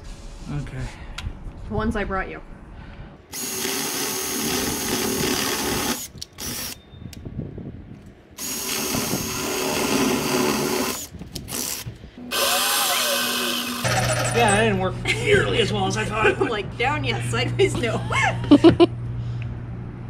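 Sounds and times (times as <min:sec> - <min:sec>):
cordless drill boring through wood: 0:03.3 - 0:06.8, 0:08.4 - 0:14.1
jigsaw cutting: 0:03.3 - 0:06.8, 0:08.4 - 0:14.3.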